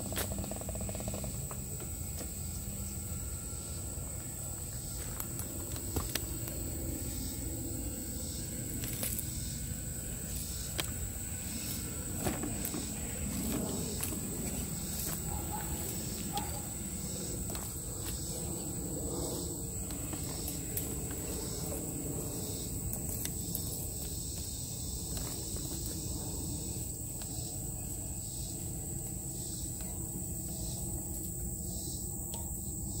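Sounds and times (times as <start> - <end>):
insects droning: 0.0 - 33.0
dry leaves and twigs crackling: 4.2 - 7.4, 8.2 - 29.0.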